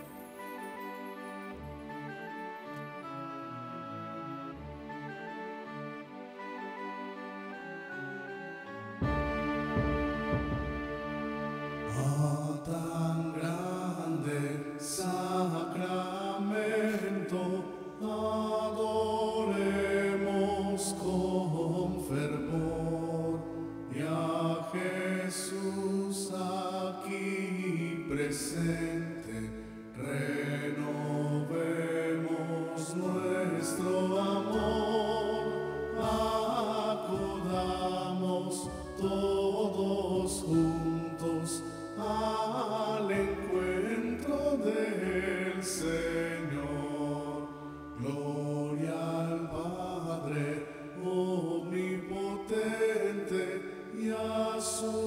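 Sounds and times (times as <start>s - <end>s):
musical accompaniment: 0.0s - 55.0s
voices singing devotional chant: 11.9s - 55.0s.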